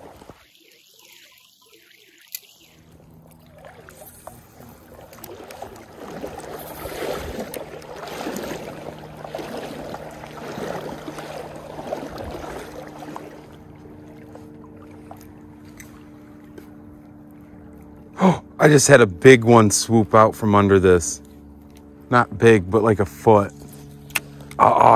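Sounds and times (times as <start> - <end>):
stream water rushing: 0.0 - 16.2
fishing reel handling noise: 2.2 - 5.8
steady low hum: 2.3 - 24.9.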